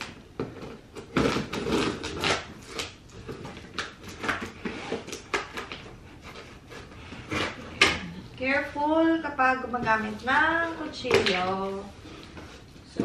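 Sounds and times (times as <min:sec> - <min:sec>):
knife scraping cardboard: 0:04.2 - 0:07.9.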